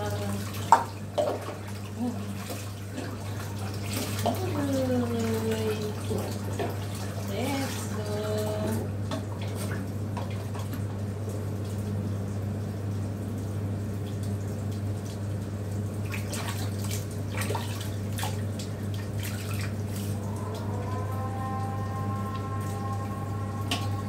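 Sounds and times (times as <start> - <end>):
water splashing and dripping: 0.0 - 24.0
steady low hum: 14.0 - 24.0.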